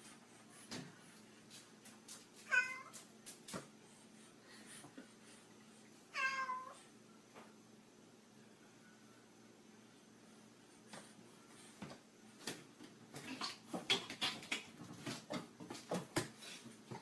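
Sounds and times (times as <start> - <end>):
cat meowing: 2.5 - 2.9, 6.1 - 6.8.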